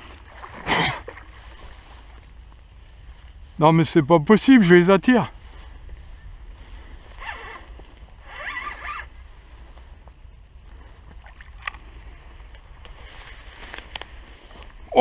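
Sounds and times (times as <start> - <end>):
wind rumble on microphone: 0.0 - 15.0
fishing reel whirring: 7.1 - 9.2.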